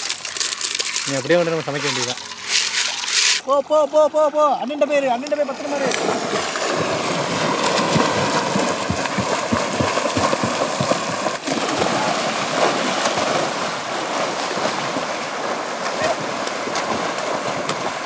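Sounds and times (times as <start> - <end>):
hands slapping water surface: 5.2 - 13.6, 14.4 - 18.0
people splashing in water: 5.2 - 18.0.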